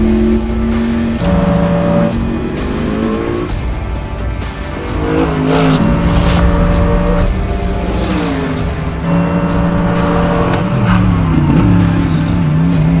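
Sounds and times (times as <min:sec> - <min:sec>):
background music: 0:00.0 - 0:13.0
race car engine running: 0:00.0 - 0:13.0.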